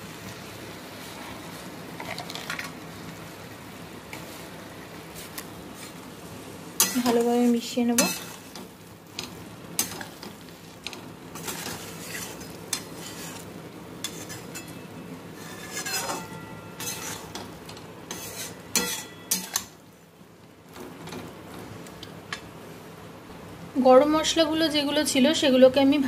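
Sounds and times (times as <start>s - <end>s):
light sizzle from pan: 0.0s - 26.0s
metal spatula scraping a pan: 6.8s - 8.6s, 11.3s - 19.7s
spatula clinking against pan: 15.8s - 17.5s, 18.1s - 19.7s.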